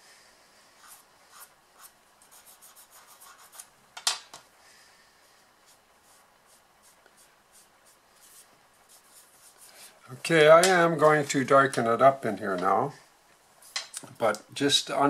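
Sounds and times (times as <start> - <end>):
pastel stick scratching on paper: 0.8 - 3.7, 5.6 - 10.2.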